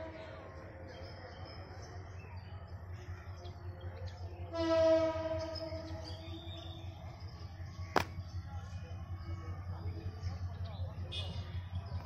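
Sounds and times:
locomotive horn: 0:04.5 - 0:06.0.

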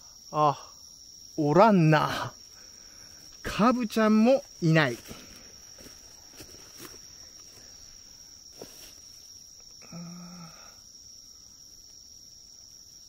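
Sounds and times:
night insects trilling: 0:00.0 - 0:13.0
footsteps brushing through plants: 0:04.4 - 0:09.3.

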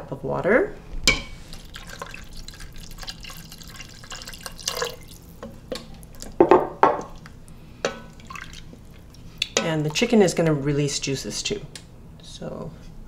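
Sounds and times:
water pouring into stew: 0:01.5 - 0:05.4, 0:08.1 - 0:09.0
wooden spoon stirring liquid: 0:01.5 - 0:06.4, 0:07.0 - 0:10.5.

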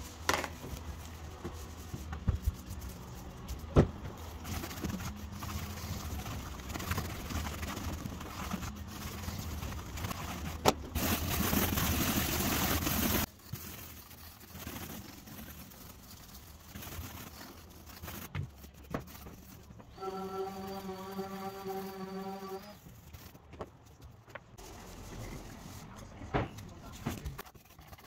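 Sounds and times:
brushes scrubbing glass panel: 0:00.0 - 0:23.5
brush knocking on panel: 0:01.4 - 0:02.9.

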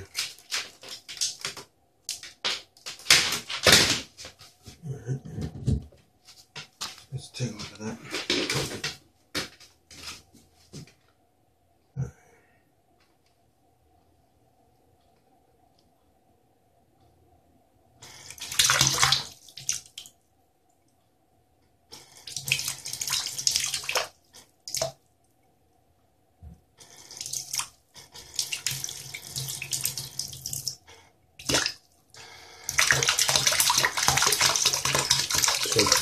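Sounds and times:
water spraying and splashing: 0:32.7 - 0:36.0.

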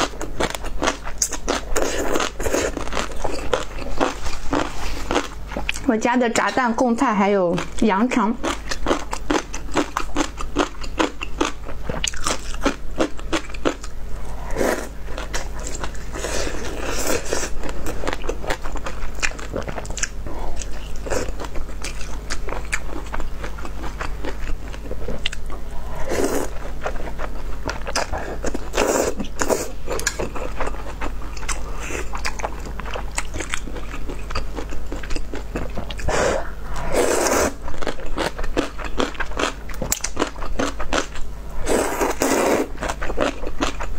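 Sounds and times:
wet chewing with crunches: 0:00.0 - 0:06.0, 0:07.5 - 0:43.9
slurping noodles: 0:25.8 - 0:26.6, 0:36.0 - 0:37.6, 0:41.6 - 0:42.7.

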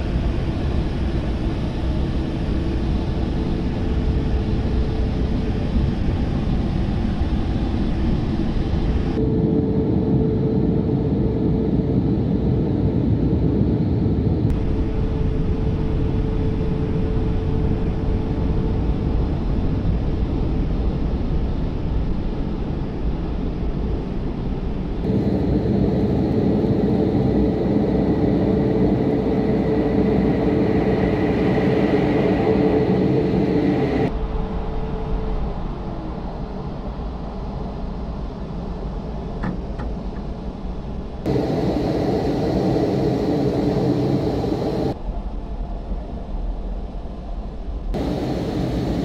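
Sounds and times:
car wash dryer blowers: 0:41.3 - 0:45.0.

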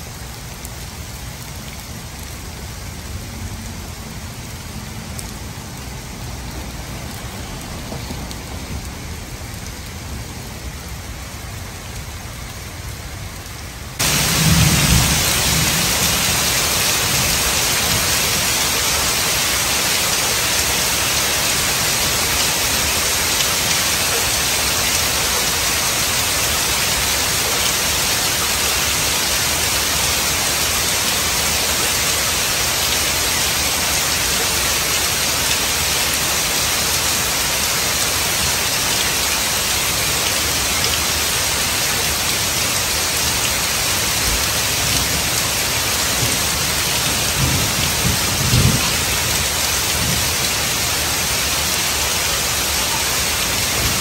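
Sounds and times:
heavy rain on asphalt: 0:00.0 - 0:54.0.

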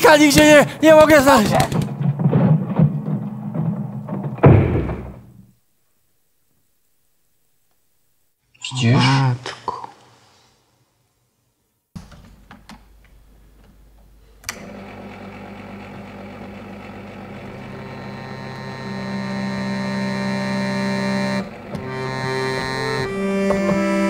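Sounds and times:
keyboard sustained chord: 0:17.7 - 0:24.0.

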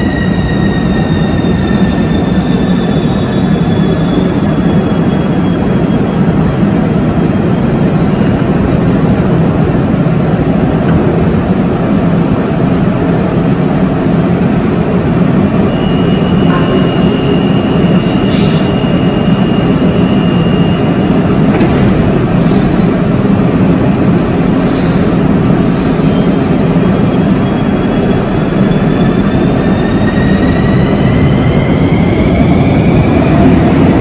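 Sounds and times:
train equipment humming: 0:00.0 - 0:34.0
short air hisses: 0:22.4 - 0:22.9, 0:24.6 - 0:26.2.

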